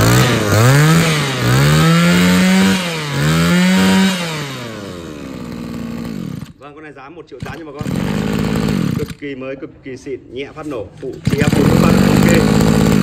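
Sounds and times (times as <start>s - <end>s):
brush cutter engine revving: 0.0s - 6.6s, 7.4s - 9.2s, 11.1s - 13.0s.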